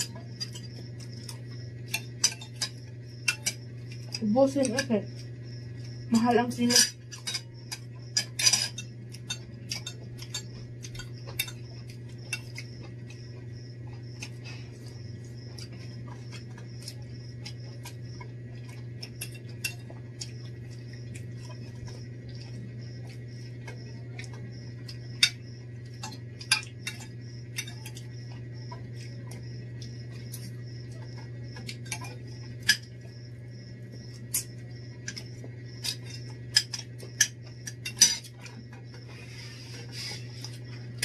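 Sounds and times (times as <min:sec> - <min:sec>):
steady low hum: 0:00.0 - 0:41.0
cutlery clinking on plates: 0:35.9 - 0:38.6.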